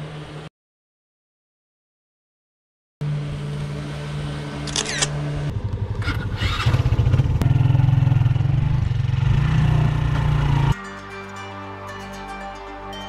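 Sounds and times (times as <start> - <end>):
vehicle engine running: 3.0 - 10.8.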